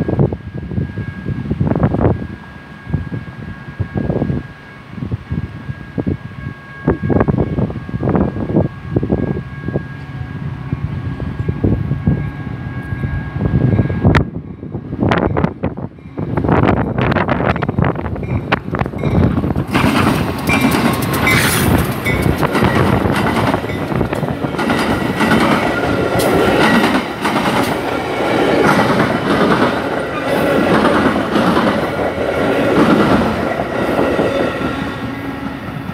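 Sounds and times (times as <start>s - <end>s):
diesel locomotive passing: 0.0s - 35.9s
wheels clacking over rail joints: 17.5s - 35.8s.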